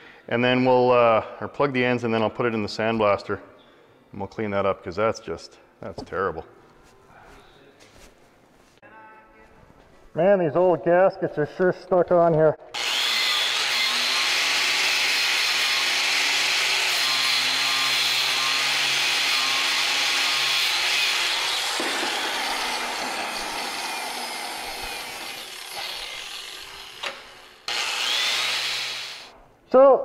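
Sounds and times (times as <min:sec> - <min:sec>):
angle grinder grinding metal: 0:12.8 - 0:29.3.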